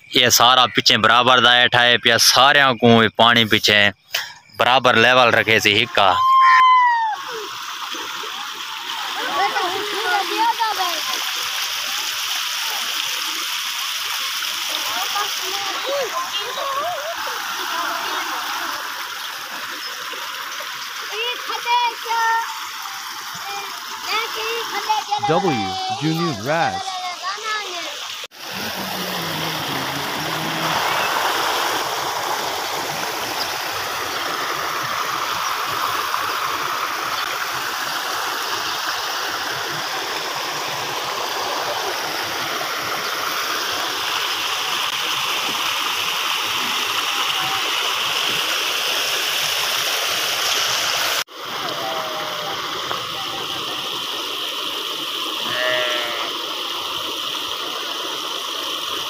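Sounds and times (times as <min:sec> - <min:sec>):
floodwater rushing: 0:03.6 - 0:59.0
sheep bleating: 0:55.4 - 0:56.3.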